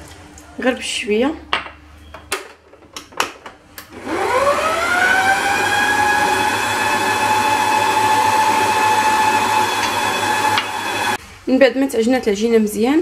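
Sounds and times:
stand mixer motor whining: 0:03.9 - 0:11.2.

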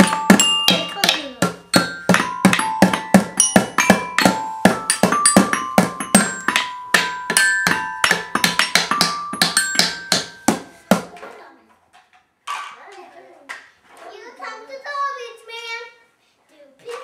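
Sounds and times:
toy glockenspiel ringing: 0:00.0 - 0:10.8
wooden toy drum beats: 0:00.0 - 0:11.4.

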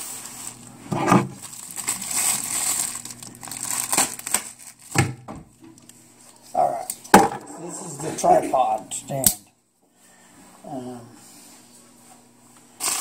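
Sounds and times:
plastic bag crinkling: 0:00.0 - 0:05.1, 0:12.8 - 0:13.0.

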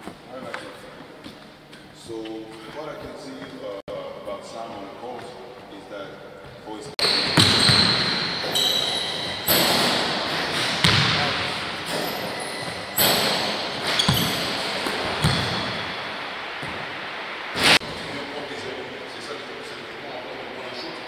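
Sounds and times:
sneakers squeaking on floor: 0:06.5 - 0:16.9
basketball knocks echoing: 0:07.0 - 0:16.9.

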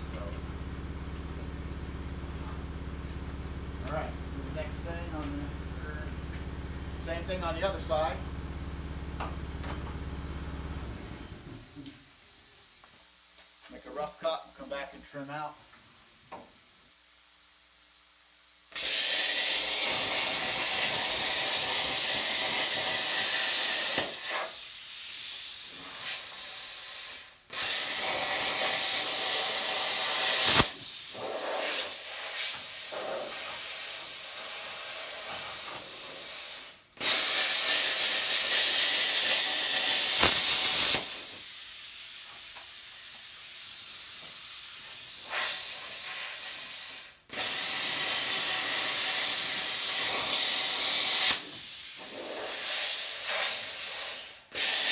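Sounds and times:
hiss of air: 0:18.7 - 0:54.9
plasma cutter cutting steel: 0:18.8 - 0:42.2, 0:44.8 - 0:54.9.

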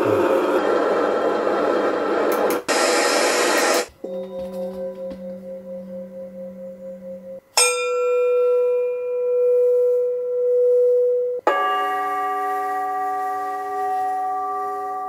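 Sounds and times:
singing bowl ringing: 0:04.0 - 0:15.0.

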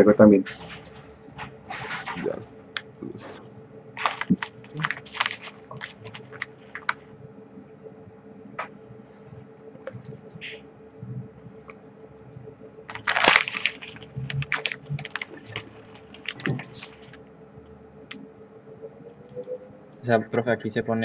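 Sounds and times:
faint steady hum: 0:00.0 - 0:21.0
keyboard typing: 0:04.0 - 0:07.0, 0:09.1 - 0:10.1, 0:19.3 - 0:20.2.

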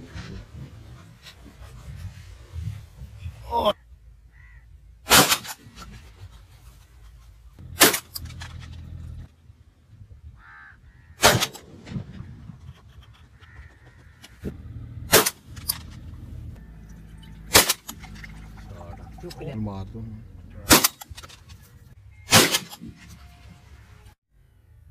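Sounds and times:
gunshots: 0:05.1 - 0:05.6, 0:07.7 - 0:08.6, 0:11.2 - 0:12.2, 0:15.1 - 0:15.7, 0:17.5 - 0:18.0, 0:20.6 - 0:21.2, 0:22.3 - 0:23.0.

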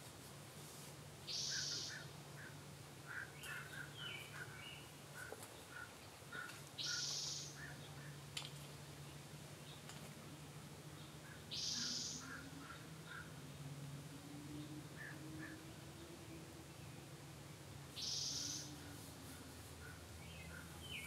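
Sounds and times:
steady low hum: 0:00.0 - 0:21.0
small bird chirping: 0:01.3 - 0:02.1, 0:06.4 - 0:08.2, 0:11.0 - 0:12.5, 0:17.9 - 0:19.0.

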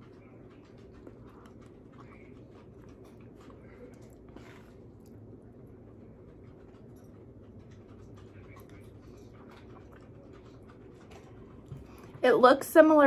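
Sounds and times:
soft chewing: 0:00.0 - 0:12.2
low room hum: 0:00.0 - 0:13.0.

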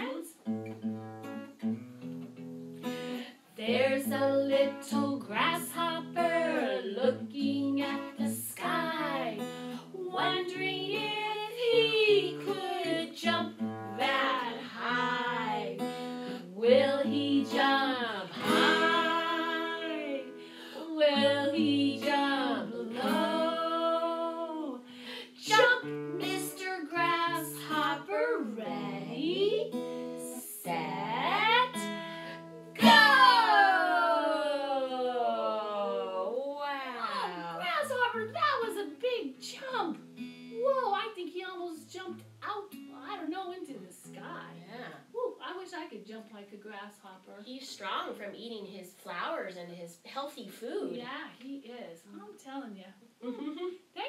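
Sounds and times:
strummed acoustic guitar: 0:00.4 - 0:33.7
women singing: 0:03.6 - 0:32.0, 0:32.8 - 0:36.3.

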